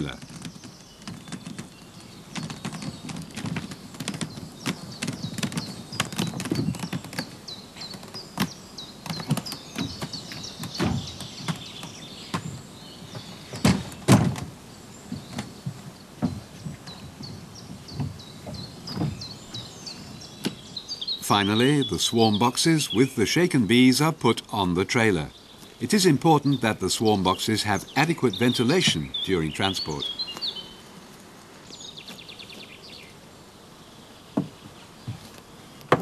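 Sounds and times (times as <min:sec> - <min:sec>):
wooden boxes knocking and thudding: 0:00.0 - 0:20.7, 0:34.4 - 0:36.0
small birds chirping: 0:00.0 - 0:36.0
heavy thumps: 0:08.0 - 0:20.7.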